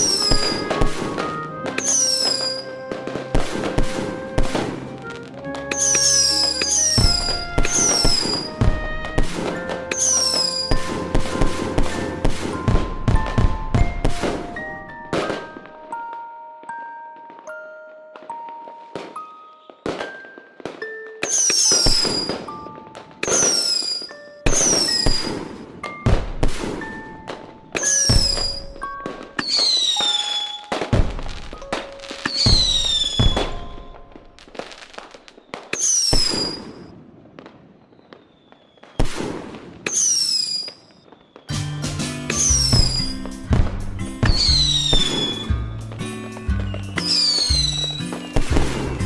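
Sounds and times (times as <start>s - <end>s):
falling whistle-like tones: 0.0s - 11.8s, 29.4s - 30.8s, 32.2s - 34.1s, 37.7s - 39.0s, 39.9s - 43.2s, 44.3s - 45.7s, 46.4s - 49.0s
firework bangs: 0.0s - 16.1s, 18.4s - 49.0s
melody of short notes: 0.0s - 34.4s.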